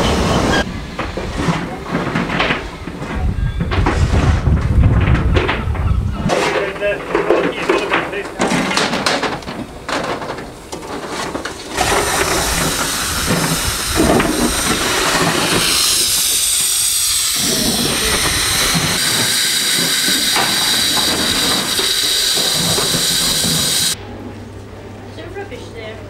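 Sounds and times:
steam locomotive letting off steam: 0.0s - 2.9s, 11.7s - 24.0s.

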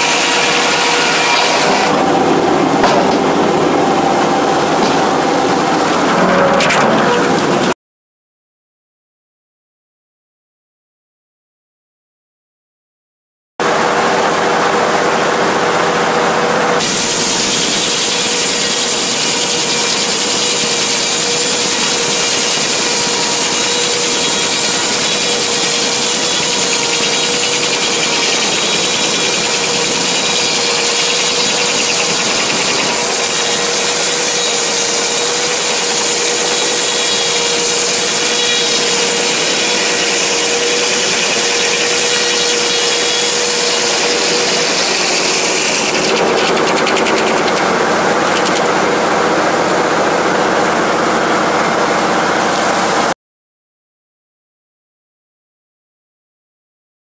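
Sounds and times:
circular saw blade cutting log: 0.0s - 7.7s, 16.7s - 52.0s
power unit engine running: 0.0s - 7.7s, 13.6s - 53.1s.

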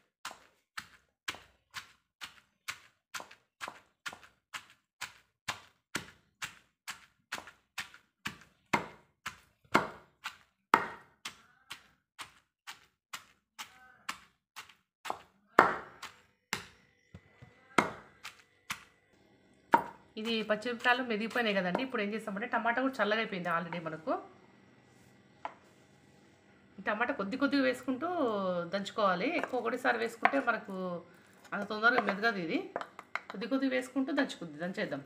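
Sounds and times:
pestle pounding in stone mortar: 0.2s - 18.9s, 19.7s - 22.0s, 29.3s - 30.6s, 31.7s - 33.4s.

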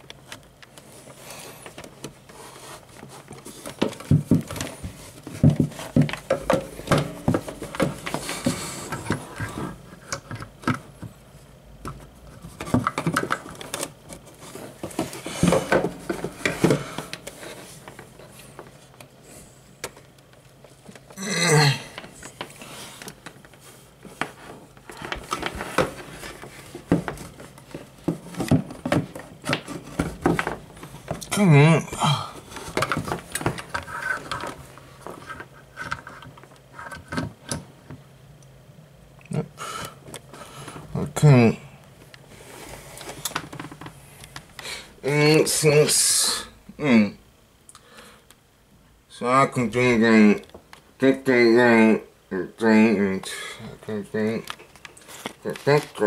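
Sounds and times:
clicks and rattles of handling: 11.8s - 19.1s.

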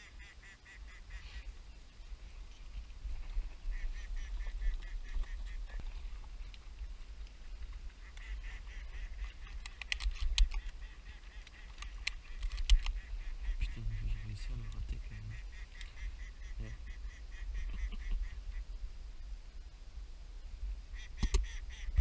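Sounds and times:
ducks quacking: 0.0s - 1.6s, 3.2s - 6.2s, 7.9s - 18.7s.

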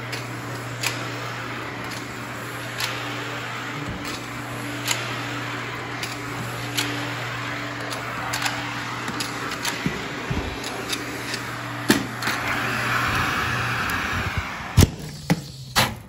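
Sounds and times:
clicks: 0.0s - 12.5s
vacuum suction rushing: 0.0s - 15.2s
low motor hum: 0.0s - 15.8s.

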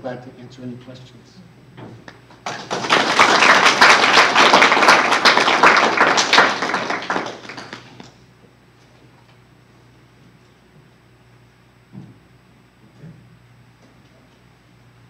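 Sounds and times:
audience applauding: 2.4s - 8.2s.

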